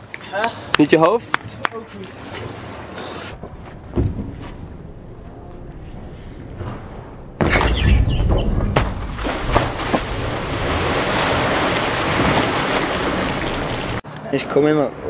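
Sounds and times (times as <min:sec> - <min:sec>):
sudden loud crash: 0:06.6 - 0:10.4
knocks and splashes: 0:07.4 - 0:14.0
person falling into water: 0:08.7 - 0:14.0.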